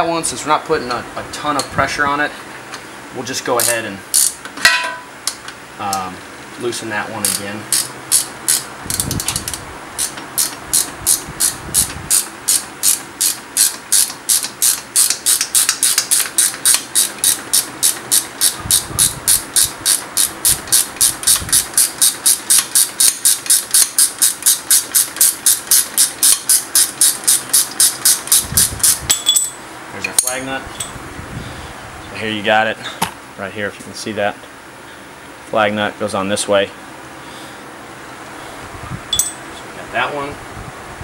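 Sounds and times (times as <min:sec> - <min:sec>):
ratcheting wrench clicking: 0:03.6 - 0:04.4, 0:07.2 - 0:29.5.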